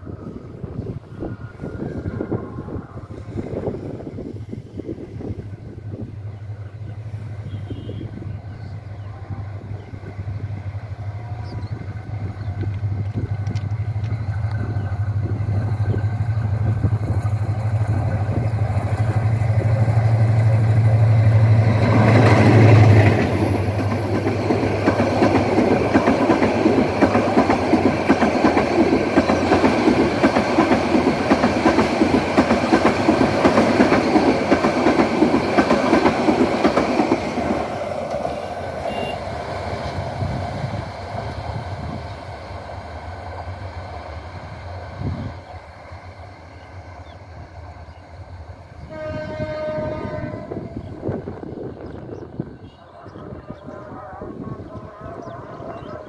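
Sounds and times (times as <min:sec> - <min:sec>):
locomotive engine drone: 0:00.0 - 0:48.9
train wheels clacking over rails: 0:11.5 - 0:45.7.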